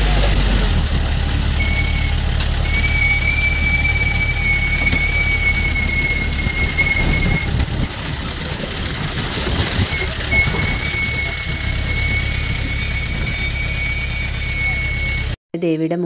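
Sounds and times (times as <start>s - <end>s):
vehicle body rattling: 0.0s - 15.3s
engine and road rumble: 0.0s - 15.4s
high-pitched whine: 9.9s - 15.4s.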